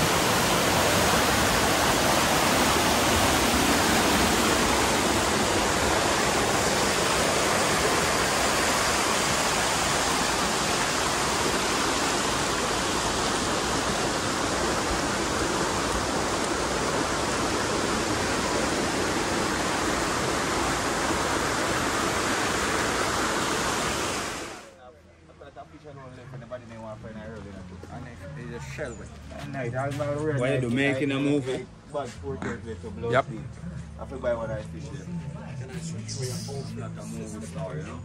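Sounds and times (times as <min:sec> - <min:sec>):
waterfall rushing: 0:00.0 - 0:24.7.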